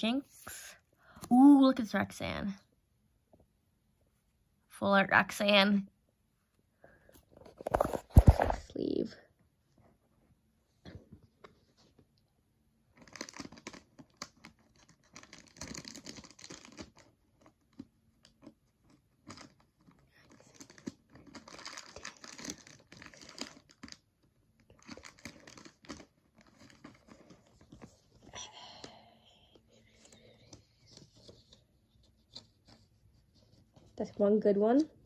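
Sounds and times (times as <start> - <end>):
cards and plastic sleeve crinkling: 7.3 - 8.7, 12.9 - 34.1.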